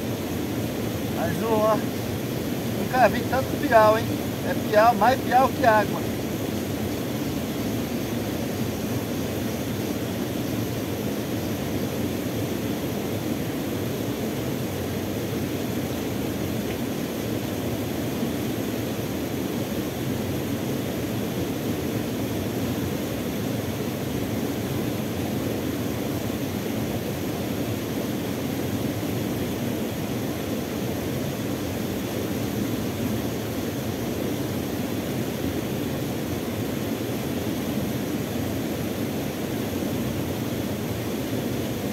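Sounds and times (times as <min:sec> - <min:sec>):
waterfall rushing: 0:00.5 - 0:06.8.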